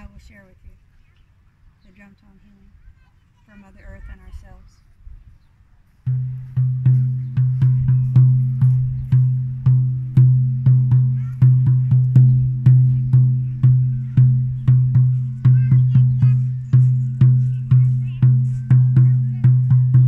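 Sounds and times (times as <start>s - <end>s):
frame drum struck with beater: 6.1s - 20.0s.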